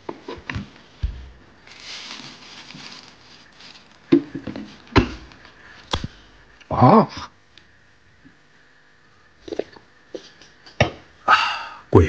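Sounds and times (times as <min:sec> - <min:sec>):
plastic bags rustling: 0:01.0 - 0:05.4.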